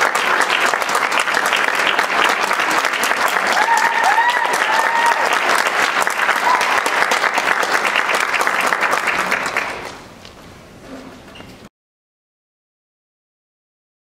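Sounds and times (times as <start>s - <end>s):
audience applauding: 0.0s - 10.2s
short cheering calls: 3.5s - 5.4s, 6.3s - 7.0s.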